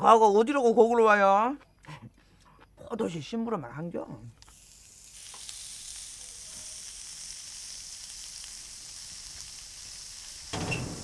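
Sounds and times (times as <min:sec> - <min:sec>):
meat sizzling on a grill pan: 0:04.4 - 0:11.0.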